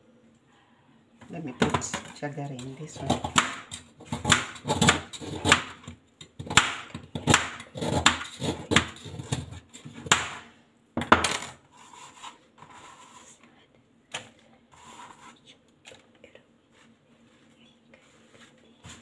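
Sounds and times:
knife chopping on plastic board: 0:01.6 - 0:10.4.

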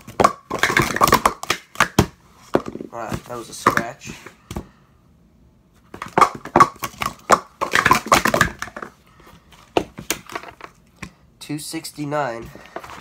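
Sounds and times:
plastic cups clattering: 0:00.0 - 0:04.2, 0:06.0 - 0:09.0.

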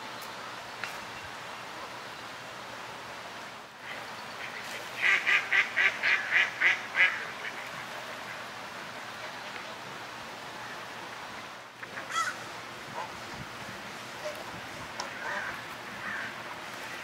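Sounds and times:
ducks quacking: 0:03.9 - 0:08.5, 0:15.0 - 0:16.4.

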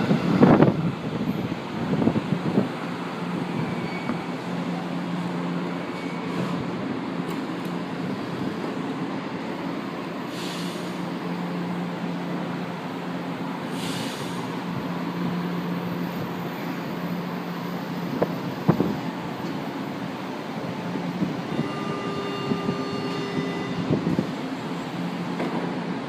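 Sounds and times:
train equipment humming: 0:00.0 - 0:26.0
short hisses: 0:10.3 - 0:11.0, 0:13.7 - 0:14.5.

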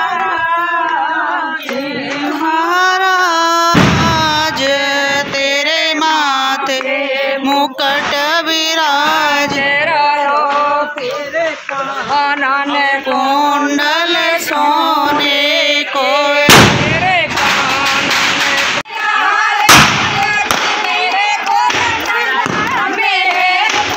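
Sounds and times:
woman singing: 0:00.0 - 0:23.9
sharp crack: 0:03.8 - 0:05.6, 0:16.5 - 0:18.8, 0:19.7 - 0:20.9.

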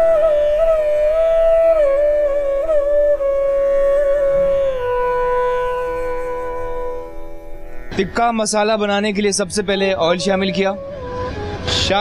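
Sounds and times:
slow gliding melody: 0:00.0 - 0:12.0
steady drone: 0:10.7 - 0:12.0.

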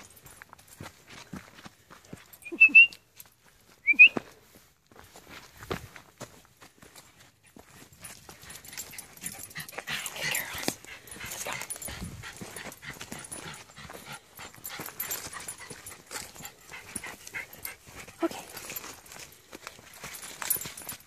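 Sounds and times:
high-pitched dog sounds: 0:08.5 - 0:18.9
paws scrambling through leaves: 0:09.8 - 0:21.0.

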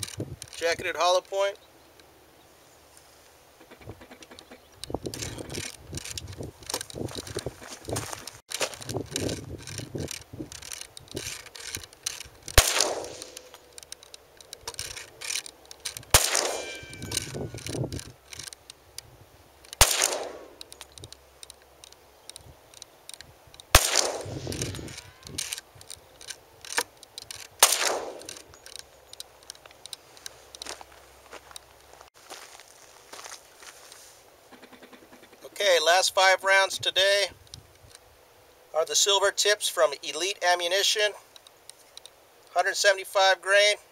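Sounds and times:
pistol shots with echo: 0:12.6 - 0:13.4, 0:16.1 - 0:17.0, 0:19.8 - 0:20.6, 0:23.8 - 0:24.5, 0:27.6 - 0:28.4.

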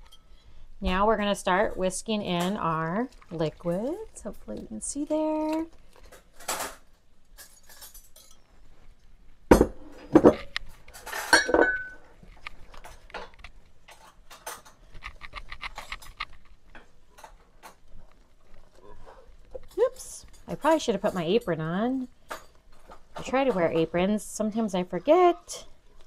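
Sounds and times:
dishes clanking and clinking: 0:09.5 - 0:12.1, 0:19.6 - 0:24.2.

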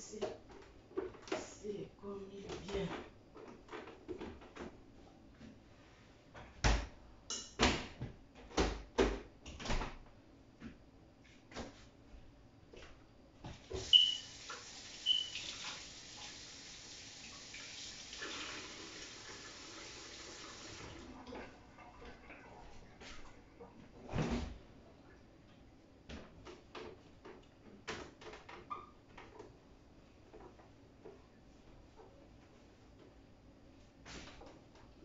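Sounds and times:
water tap running: 0:13.8 - 0:21.2.

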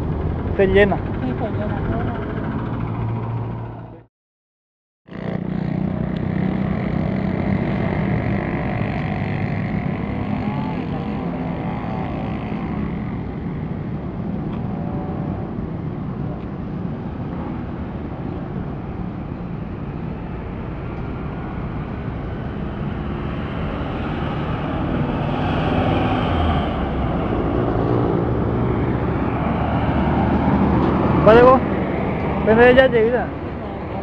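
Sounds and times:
passing vehicle engine rumble: 0:00.0 - 0:04.1, 0:05.1 - 0:34.0.

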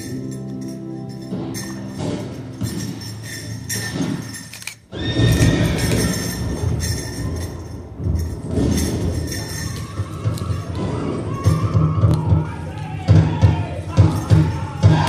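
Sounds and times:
hooves galloping: 0:00.0 - 0:15.0
horses neighing: 0:04.9 - 0:07.0.

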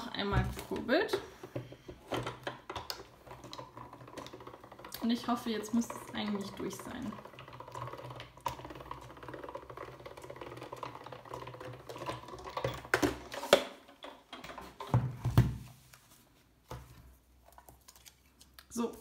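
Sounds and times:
hand-cranked machine clicking: 0:00.6 - 0:14.8.

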